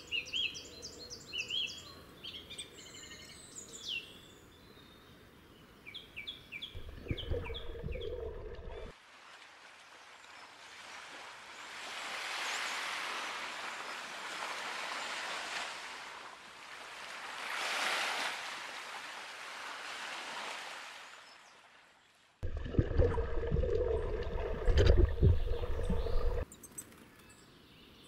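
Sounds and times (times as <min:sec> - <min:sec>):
surf washing onto beach: 0:06.9 - 0:21.1.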